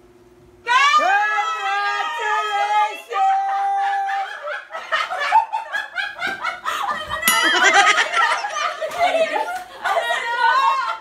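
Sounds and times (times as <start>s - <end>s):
group of people laughing: 3.2s - 11.0s
steady held tone: 7.2s - 8.7s.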